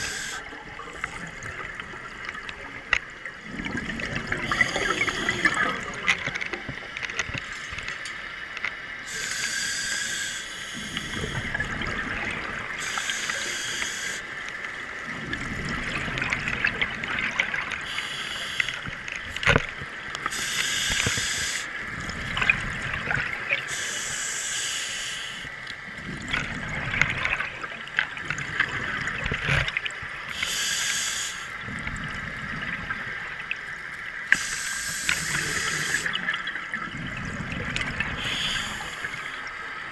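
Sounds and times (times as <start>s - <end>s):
diver breathing through regulator: 0.0s - 0.5s, 4.4s - 5.7s, 9.1s - 11.6s, 12.8s - 14.3s, 17.8s - 18.8s, 20.3s - 21.7s, 23.7s - 25.5s, 30.3s - 31.6s, 34.3s - 36.2s, 38.2s - 39.5s
exhaled bubbles gurgling: 0.0s - 7.8s, 9.0s - 24.4s, 25.2s - 39.9s.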